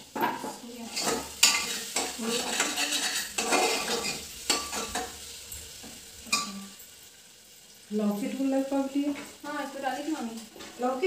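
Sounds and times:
spoon stirring and scraping pot: 0.0s - 7.0s
masala sizzling: 0.0s - 11.0s
spoon clinking against pot: 6.3s - 6.9s.

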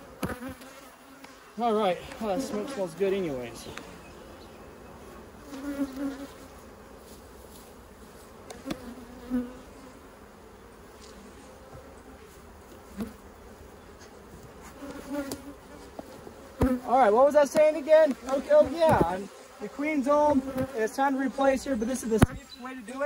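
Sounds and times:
bees buzzing: 0.0s - 23.0s.

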